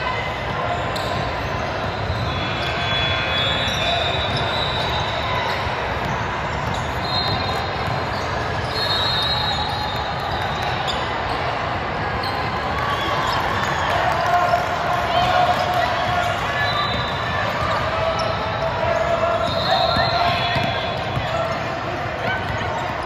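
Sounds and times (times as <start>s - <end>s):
crowd chatter: 0.0s - 23.0s
shoe squeaks: 0.8s - 11.2s, 16.5s - 21.5s.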